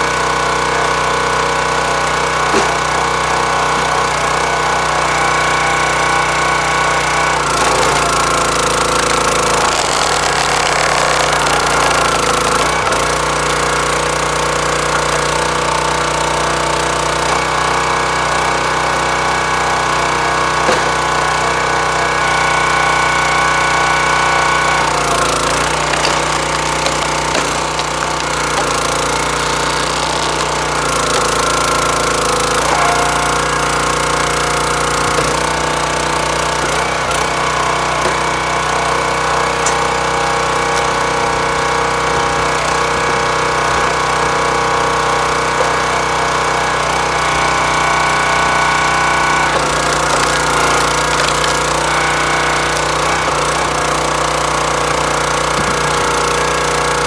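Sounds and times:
log splitter engine running: 0.0s - 57.0s.

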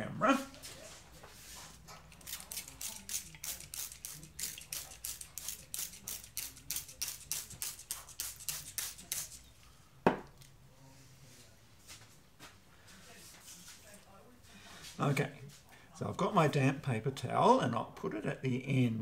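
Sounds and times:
spray bottle hissing: 2.2s - 9.4s.

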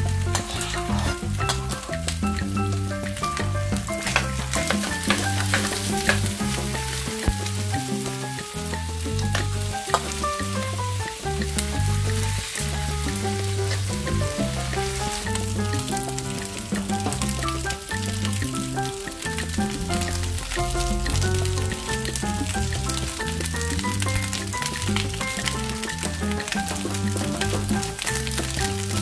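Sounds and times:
grain sizzling in a frying pan: 0.0s - 2.4s, 3.1s - 29.0s
background music with bass line: 0.0s - 29.0s
metal spoon scraping a pan: 0.3s - 1.7s, 4.0s - 6.2s.

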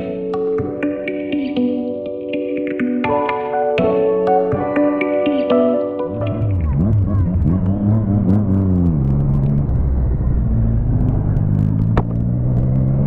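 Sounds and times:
motorcycle engine revving: 6.1s - 13.0s.

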